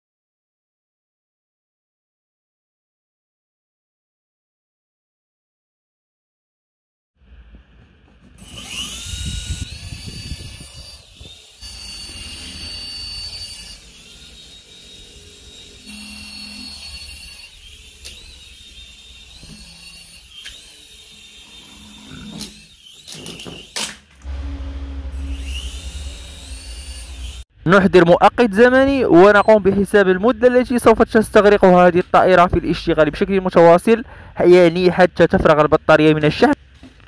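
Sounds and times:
toy helicopter motors whining: 8.4 - 23.9, 25.2 - 27.5
steady low rumble: 24.2 - 29.0.

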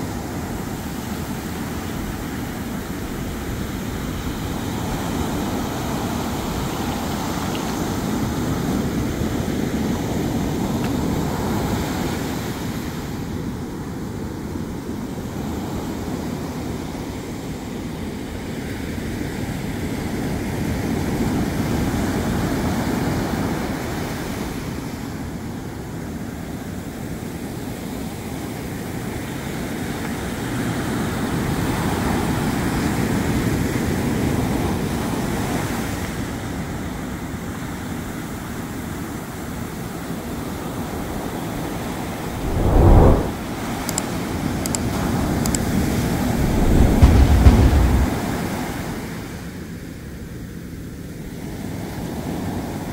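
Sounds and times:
ocean surf breaking on beach: 42.3 - 43.4, 46.2 - 49.0.

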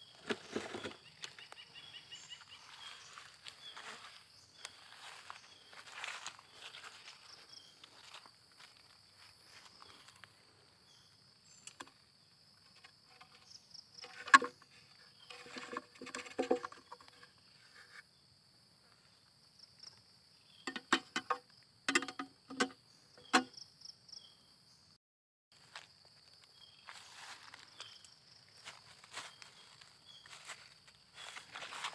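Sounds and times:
plastic lid clicking open and shut: 20.7 - 23.5.

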